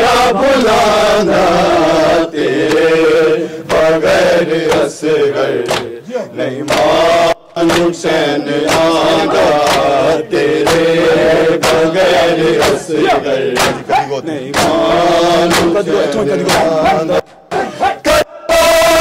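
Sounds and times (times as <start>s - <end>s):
men chanting in unison: 0.0s - 19.0s
hand slaps of chest-beating: 4.6s - 5.0s, 5.6s - 6.0s, 6.7s - 7.0s, 7.6s - 15.8s, 16.4s - 17.0s.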